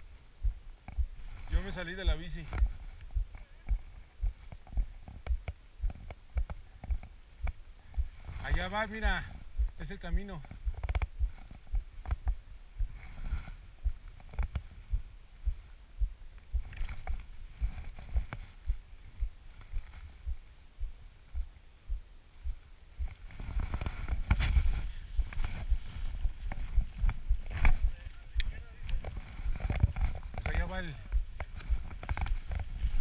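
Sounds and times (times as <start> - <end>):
bike rolling on dirt trail: 28.9 - 33.0.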